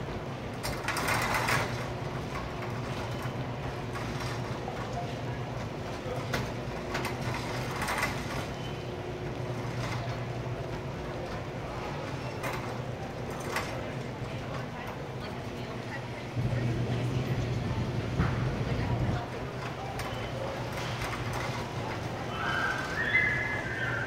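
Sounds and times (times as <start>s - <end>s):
shopping cart wheels rumbling: 0.0s - 24.0s
shopping cart clattering: 0.5s - 24.0s.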